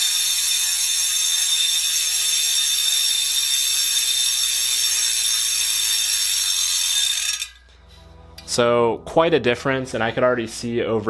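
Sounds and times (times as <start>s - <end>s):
bicycle hub ratchet buzz: 0.0s - 7.6s.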